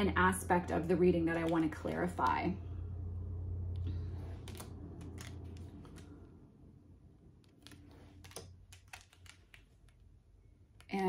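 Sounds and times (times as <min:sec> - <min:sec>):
low steady hum: 0:00.0 - 0:11.0
fingernails tapping cards: 0:01.3 - 0:02.4, 0:04.3 - 0:06.2, 0:07.4 - 0:10.1
cards being handled: 0:04.0 - 0:06.3, 0:07.4 - 0:10.9.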